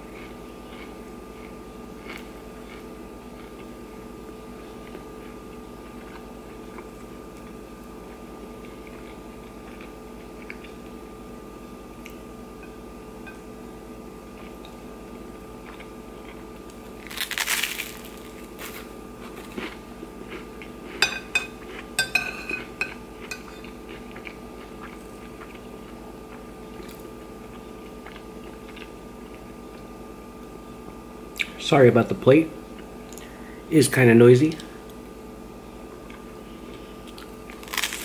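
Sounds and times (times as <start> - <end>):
loud crunch: 17.0 - 19.8, 37.5 - 38.0
metal spoon scraping ceramic plate: 21.0 - 23.6.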